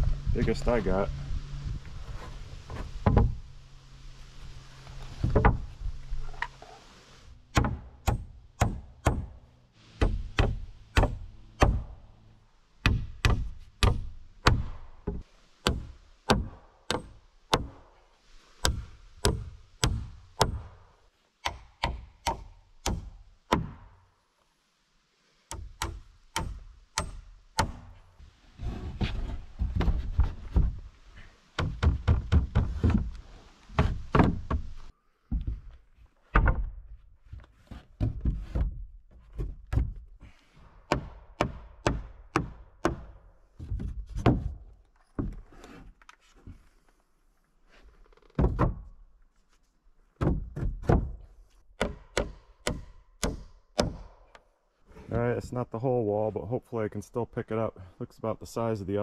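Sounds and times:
hammer driving nails into wood: 25.5s - 27.8s, 51.8s - 54.2s.

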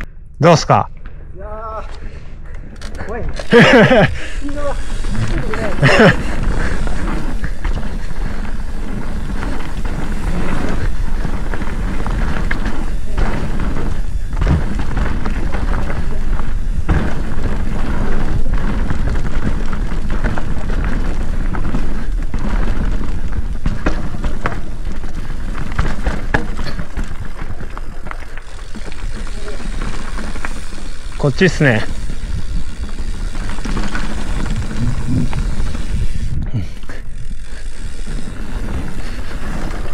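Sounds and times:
bike clicks and rattles: 0.0s - 39.9s
tyres rolling on dirt: 3.0s - 39.9s
wind rumble on microphone: 31.9s - 39.9s.

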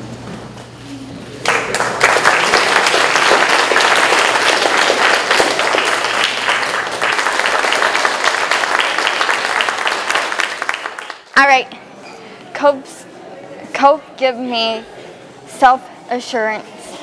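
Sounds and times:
audience applauding: 1.4s - 11.3s.

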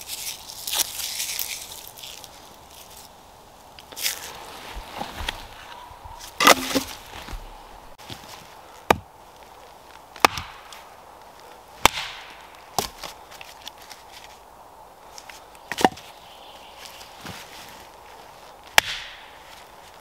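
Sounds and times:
axe chopping log: 6.4s - 7.0s, 8.8s - 9.1s, 10.2s - 10.8s, 11.8s - 13.1s, 18.8s - 19.2s.

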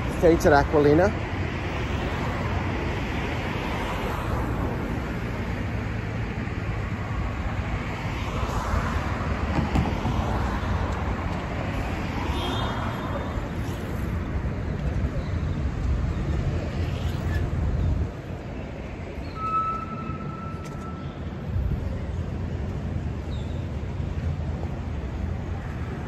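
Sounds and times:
cars passing by: 0.0s - 26.0s
road noise rumble: 0.0s - 26.0s.

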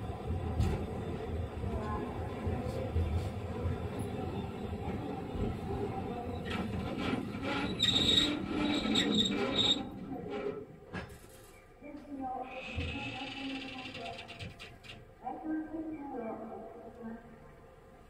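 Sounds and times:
tram rumbling on rails: 0.0s - 11.1s, 12.5s - 15.0s
high-pitched wheel squeal: 7.4s - 9.9s.

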